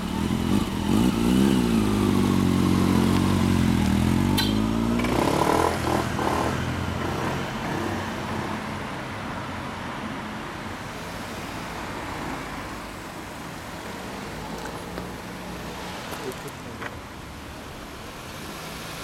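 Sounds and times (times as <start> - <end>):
motorcycle engine pulling away: 0.0 - 7.9
scooter pulling away: 0.0 - 8.0.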